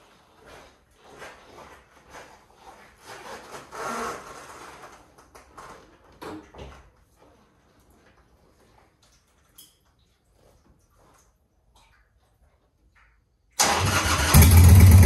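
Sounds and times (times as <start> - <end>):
rustling of riding clothes: 0.0 - 11.4.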